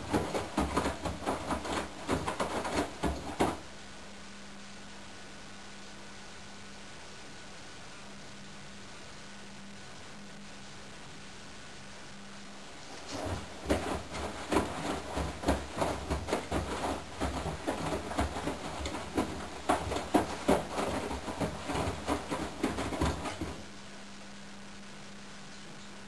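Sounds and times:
laundry sloshing and thudding: 0.0 - 3.7, 12.8 - 23.7
washing machine drive rumble: 0.0 - 3.8, 12.8 - 23.9
washing machine hum: 0.0 - 4.2, 12.6 - 24.2.

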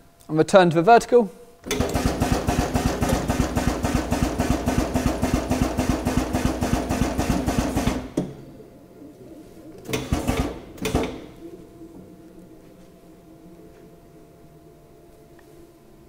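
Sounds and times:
drum tipper drive pulsing: 1.7 - 8.8, 9.6 - 14.9.

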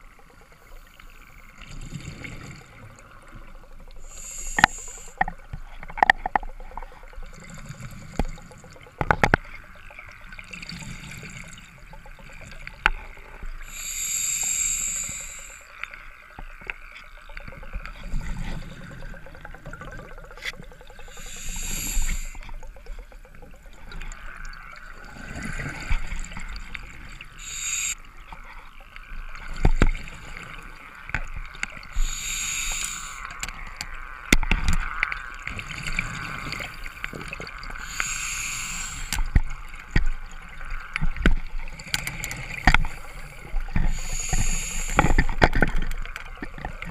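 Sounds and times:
underwater regulator breathing bubbles: 4.1 - 5.3, 13.6 - 15.6, 21.0 - 22.5, 27.4 - 28.0, 31.9 - 33.6, 36.0 - 39.4, 41.9 - 45.8.

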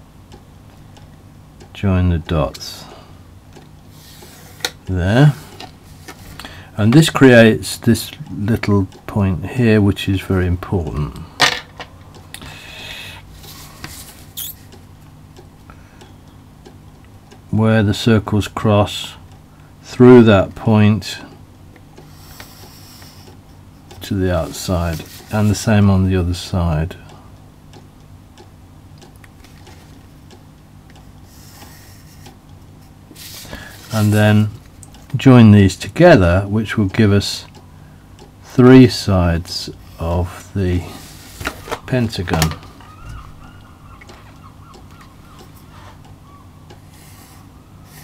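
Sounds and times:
low steady hum: 0.0 - 48.0
small clicks and taps: 27.7 - 32.7.

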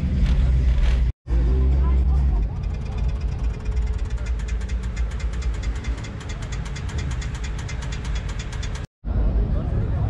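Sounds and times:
engine idling: 1.9 - 8.9.

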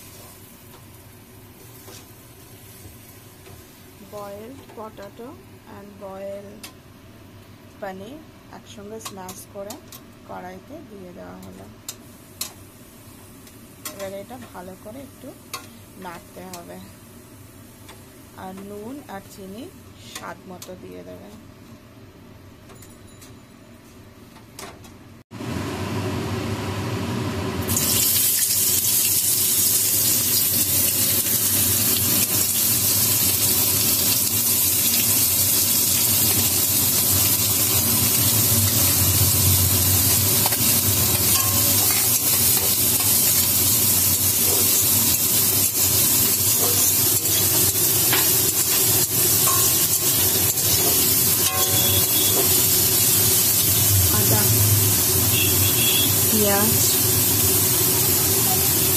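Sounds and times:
onions sizzling in hot oil: 0.0 - 6.1, 11.9 - 19.6, 27.6 - 58.9.

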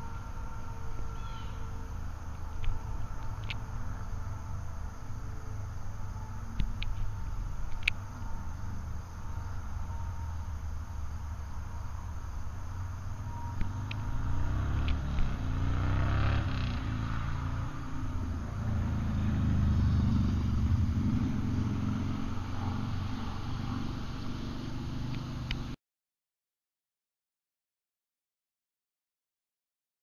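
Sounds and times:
road traffic rumble: 0.0 - 25.8
vehicle passing close by: 12.6 - 25.8.

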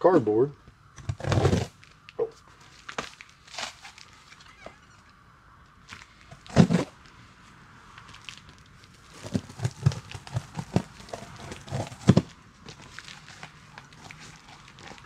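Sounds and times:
knife cutting cardboard: 6.4 - 6.9, 9.2 - 15.0.

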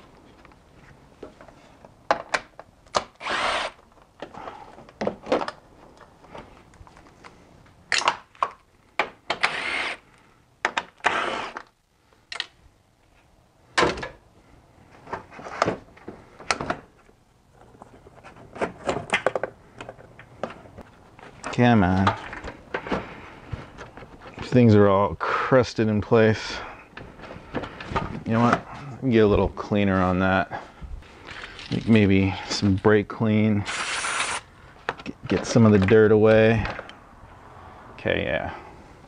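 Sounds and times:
cordless drill spinning: 3.2 - 3.8, 9.4 - 10.1, 11.0 - 11.6, 33.7 - 34.4.

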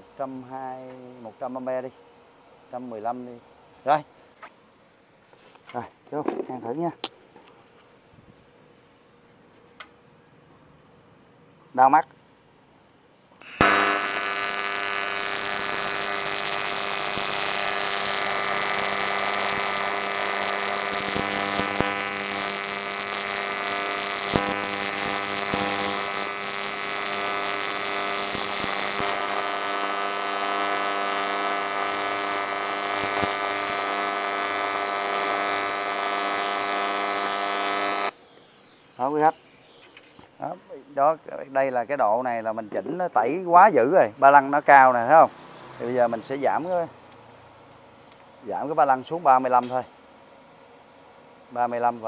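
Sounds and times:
welding arc buzz: 13.4 - 40.3.

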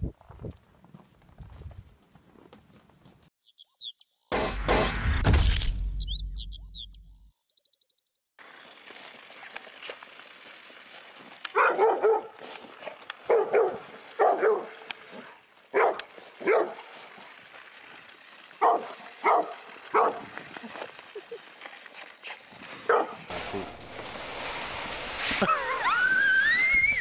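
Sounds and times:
dog barking: 11.5 - 12.4, 13.3 - 14.8, 15.7 - 16.8, 18.6 - 20.3, 22.9 - 23.2.

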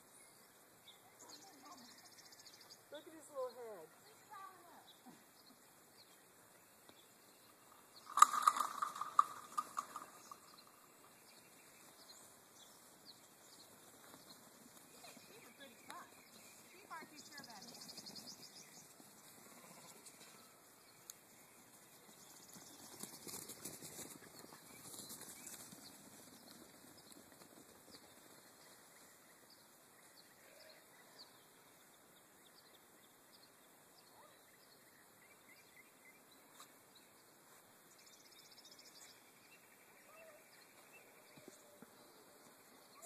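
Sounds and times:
faint high chirps and ticks: 0.0 - 43.0.

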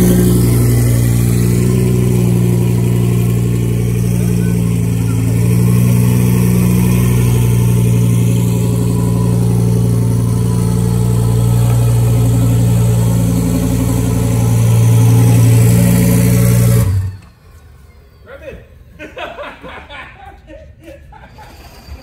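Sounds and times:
car engine running: 0.0 - 17.3.

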